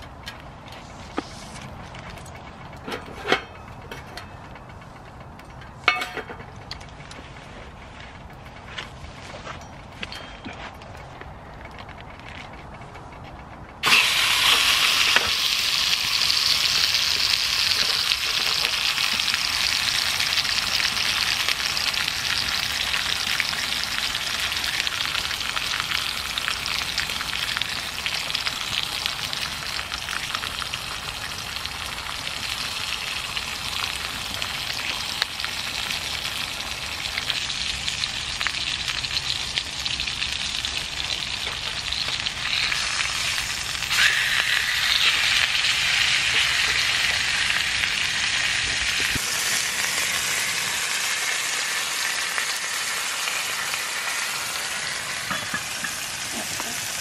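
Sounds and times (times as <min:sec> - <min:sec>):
meat sizzling in a pan: 0:13.8 - 0:57.0.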